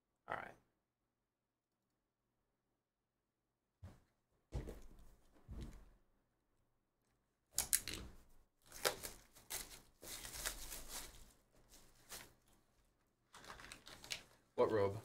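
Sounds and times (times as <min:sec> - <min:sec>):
plastic shrink wrap crinkling: 0:08.6 - 0:14.6.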